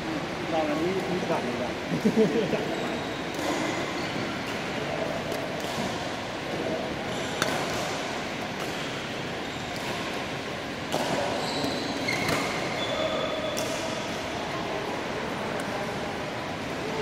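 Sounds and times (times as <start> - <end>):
background noise: 0.0 - 17.0
rackets striking shuttlecocks: 7.3 - 12.7
shoes squeaking on floor: 11.3 - 13.5.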